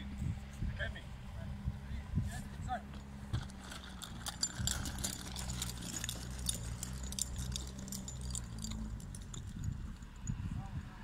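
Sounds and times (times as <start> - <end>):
low engine hum: 0.0 - 11.0
metallic clicks and clinks: 2.9 - 10.4.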